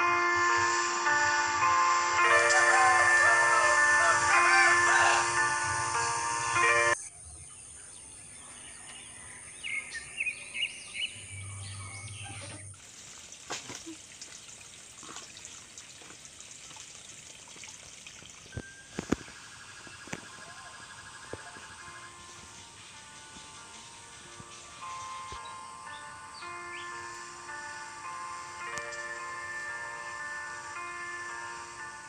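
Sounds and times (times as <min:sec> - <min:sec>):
trickling water hiss: 0:12.4 - 0:32.0
birds calling: 0:19.0 - 0:28.6.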